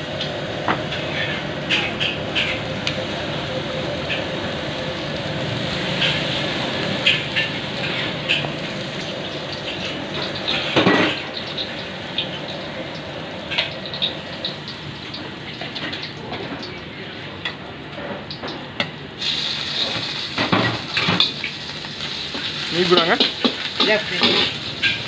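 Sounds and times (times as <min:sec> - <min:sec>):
food sizzling in wok: 0:00.0 - 0:17.3, 0:19.2 - 0:25.0.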